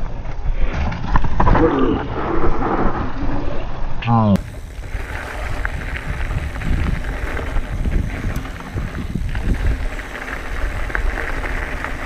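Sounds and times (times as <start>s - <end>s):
wind rumbling on microphone: 0.0s - 12.0s
tyres crunching on gravel: 4.4s - 12.0s.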